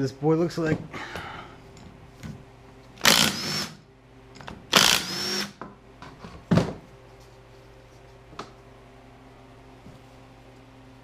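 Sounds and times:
impact wrench whine: 3.0 - 5.7.

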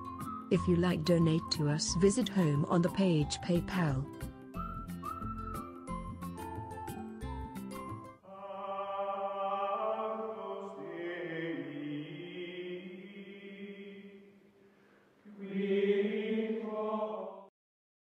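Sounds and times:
choir-like jingle chords: 8.2 - 13.4.

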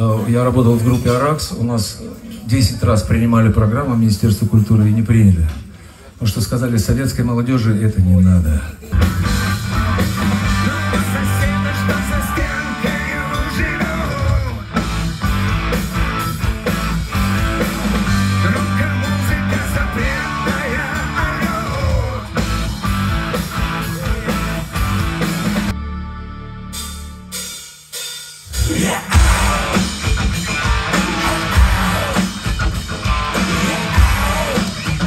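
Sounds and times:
drums: 0.0 - 25.8, 26.6 - 35.0
electric guitar: 8.9 - 27.0, 28.7 - 35.0
electric bass: 8.9 - 27.6, 28.6 - 35.0
man singing: 10.5 - 14.7, 18.3 - 22.4, 28.6 - 32.3.

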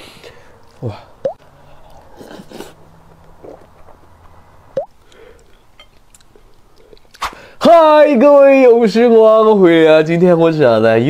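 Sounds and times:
person chewing food: 1.4 - 7.2.

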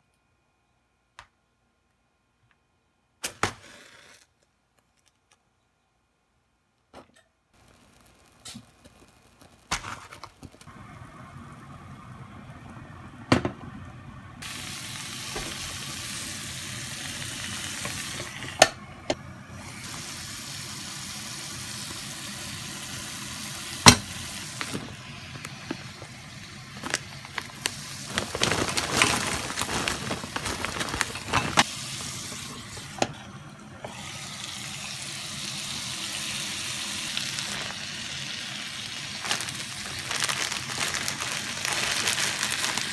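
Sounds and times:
meat sizzling on a grill plate: 14.4 - 18.5, 19.6 - 24.8, 33.9 - 39.8.

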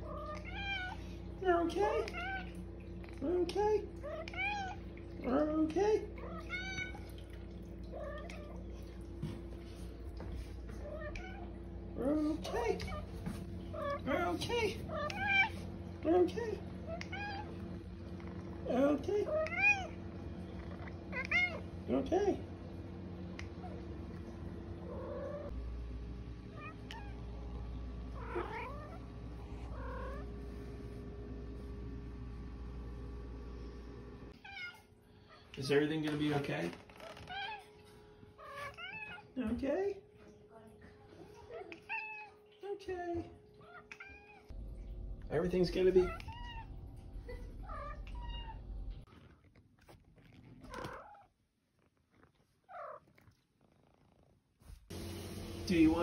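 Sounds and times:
cat meowing: 0.0 - 1.0, 6.2 - 7.1, 16.9 - 17.6, 19.3 - 20.0, 21.1 - 21.7, 28.2 - 30.3, 34.4 - 34.9, 38.4 - 39.3, 41.5 - 42.4, 43.6 - 44.5, 46.0 - 46.8, 47.6 - 48.7.

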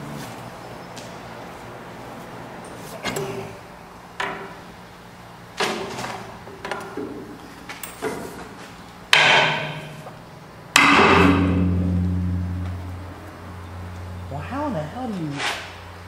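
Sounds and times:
hammer striking steel: 10.8 - 14.2
low hum: 10.8 - 15.1.

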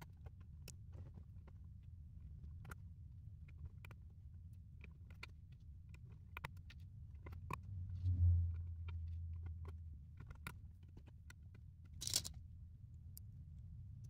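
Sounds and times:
low rumble of handling: 0.0 - 14.0
plastic pieces clicking: 12.0 - 12.4.

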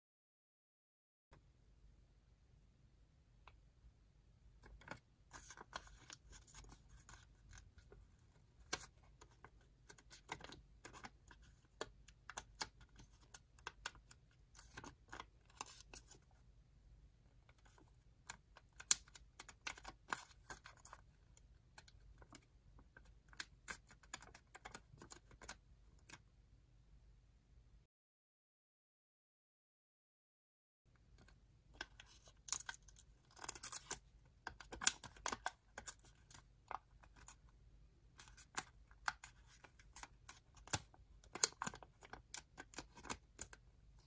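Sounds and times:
paper being folded and creased: 4.7 - 16.3, 17.6 - 21.0, 38.2 - 43.6.

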